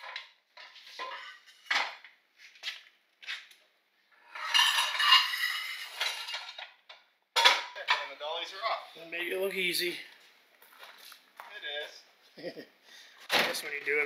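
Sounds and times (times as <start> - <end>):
metal bar scraping on concrete: 4.3 - 6.6.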